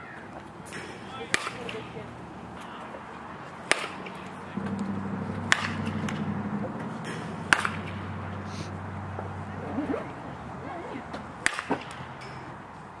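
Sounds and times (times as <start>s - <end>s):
bat cracking against ball: 0.6s - 2.0s, 3.6s - 10.2s, 11.1s - 12.7s
low steady hum: 4.5s - 12.4s.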